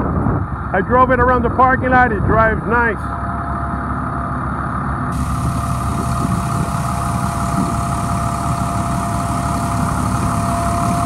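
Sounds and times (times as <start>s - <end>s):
diesel engine idling: 0.2s - 11.0s
thin steady whine: 2.7s - 11.0s
hiss: 5.1s - 11.0s.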